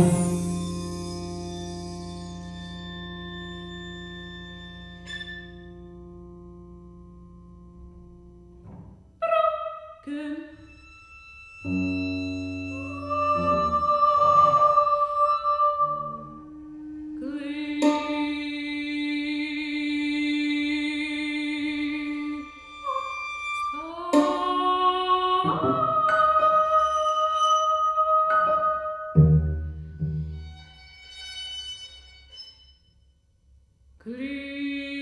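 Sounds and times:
chamber music held notes: 0.0 - 8.7, 11.6 - 19.7
soprano singing: 9.2 - 10.8, 11.6 - 29.6, 34.0 - 35.0.

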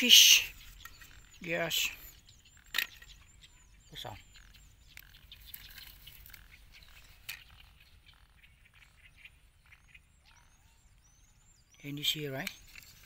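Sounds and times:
grass rustling: 4.4 - 8.9.

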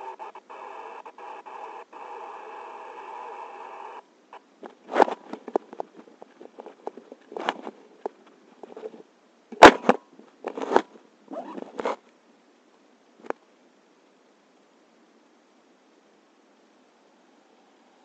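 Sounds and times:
fabric and webbing rustling: 4.6 - 12.0.

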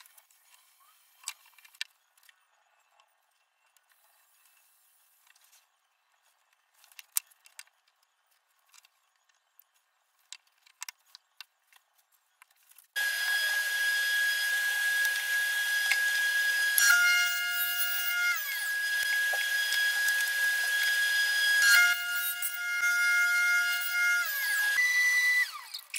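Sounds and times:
saw blade cutting wood: 13.0 - 25.9
table saw whine: 13.0 - 25.9.

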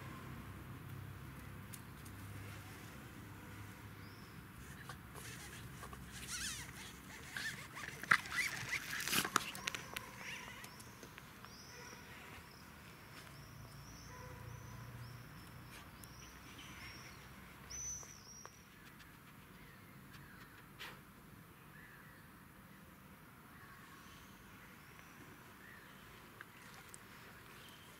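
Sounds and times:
small bird chirping: 4.0 - 20.8
dogs yipping: 6.2 - 10.8.

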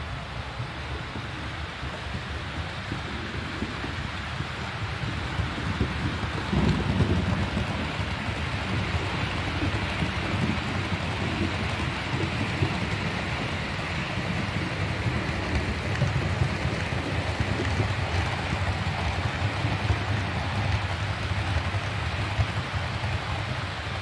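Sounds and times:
model train wheels rattling on rails: 3.2 - 24.0.

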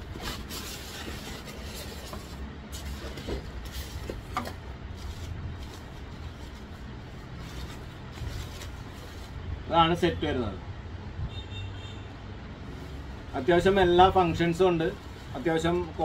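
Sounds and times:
cardboard box being handled: 0.0 - 6.6
plastic wrapping rustling: 0.0 - 9.4, 14.5 - 16.0
steady low rumble: 0.0 - 9.8.

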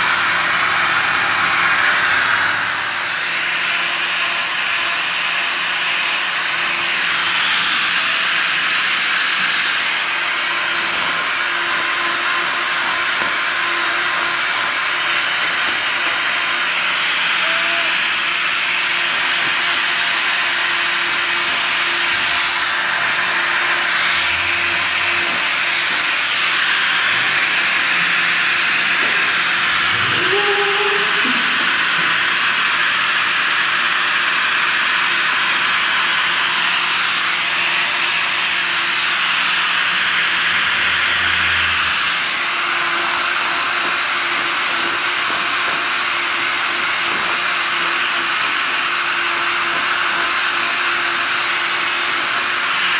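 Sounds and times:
angle grinder shaving hoof: 0.0 - 52.9.

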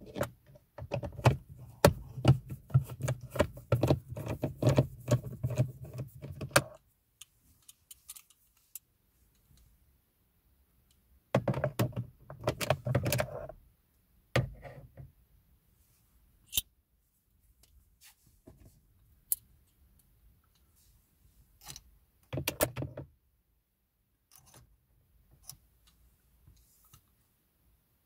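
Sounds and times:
metal tool and screws clicking on plastic: 24.3 - 24.7.

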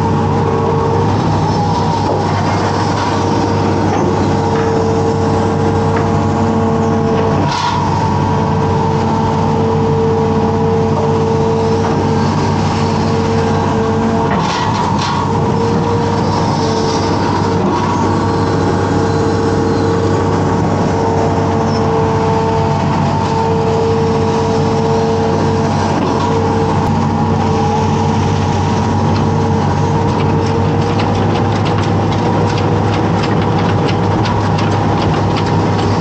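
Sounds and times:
excavator diesel engine running: 0.0 - 36.0
hydraulic whining: 0.0 - 36.0.

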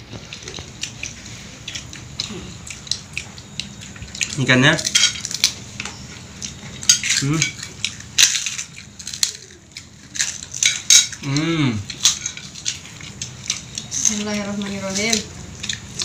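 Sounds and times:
spoons and plates clinking: 3.8 - 11.3.

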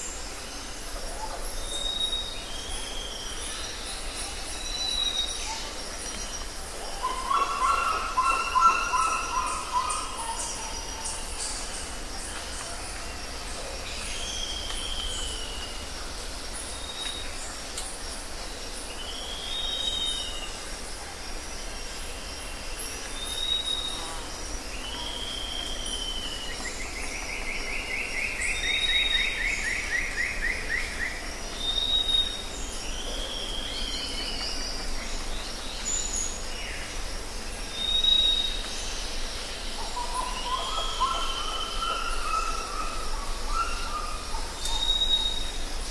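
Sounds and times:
birds singing whistled phrases: 43.5 - 45.5.

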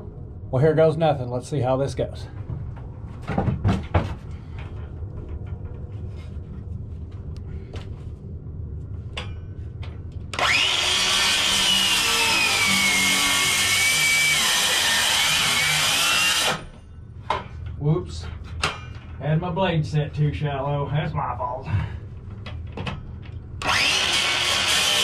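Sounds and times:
faint knocks and shuffling: 2.2 - 10.2
power saw cutting shingles: 10.4 - 16.7, 23.6 - 25.0.

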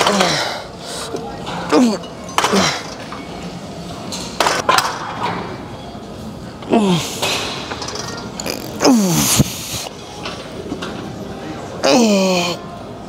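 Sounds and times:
person grunting: 6.7 - 7.1, 8.4 - 9.5.

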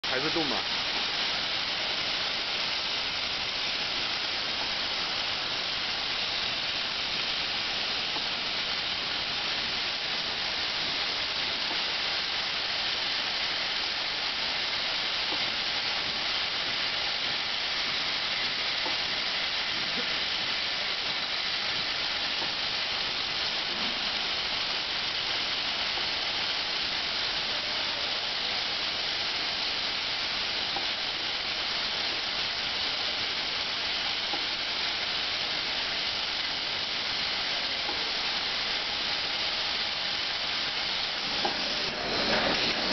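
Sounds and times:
hissing high-pitched machine noise: 0.0 - 42.9.

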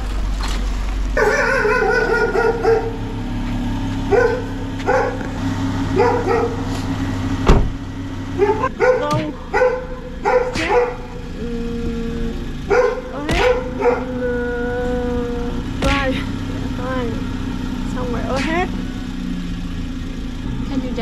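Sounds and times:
car engine idling: 0.0 - 21.0
dog barking: 1.2 - 3.1, 4.1 - 5.3, 5.9 - 6.7, 8.3 - 11.3, 12.6 - 14.2.

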